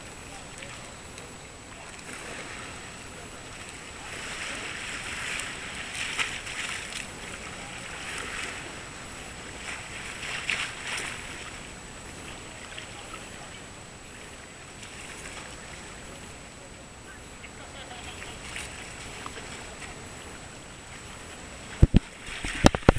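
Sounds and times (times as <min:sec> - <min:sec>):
water lapping against quay: 0:00.0 - 0:22.9
water splashes: 0:00.0 - 0:22.9.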